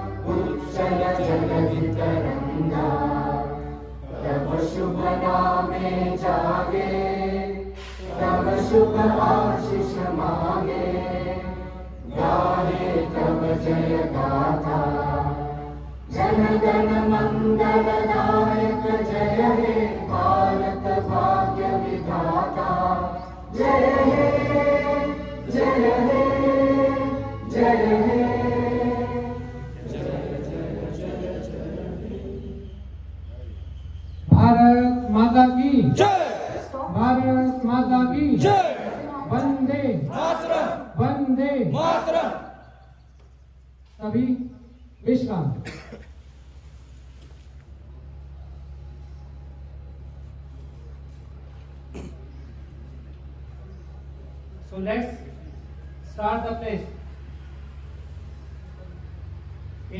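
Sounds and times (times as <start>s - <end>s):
group of people singing in unison: 0.0s - 33.2s, 35.9s - 41.0s.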